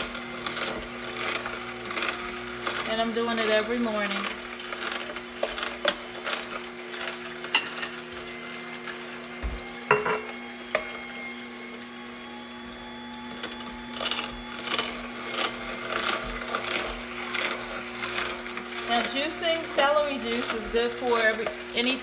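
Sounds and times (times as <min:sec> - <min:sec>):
celery crunching: 0:00.0 - 0:09.0, 0:13.3 - 0:21.6
juicer motor hum: 0:00.0 - 0:22.0.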